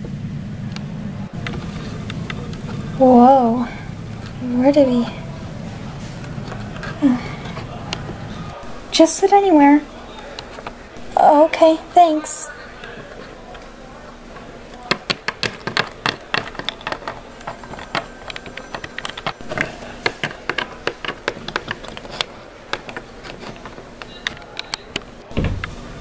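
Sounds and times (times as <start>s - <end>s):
plastic figurines tapping on table: 14.8s - 25.1s
dull thump: 25.3s - 25.7s.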